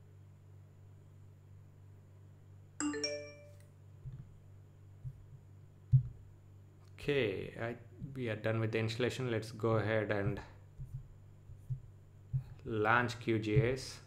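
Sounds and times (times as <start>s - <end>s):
steady low hum: 0.0s - 14.0s
bright bell-like chime: 2.8s - 3.6s
soft low thumps: 4.0s - 6.4s, 10.1s - 14.0s.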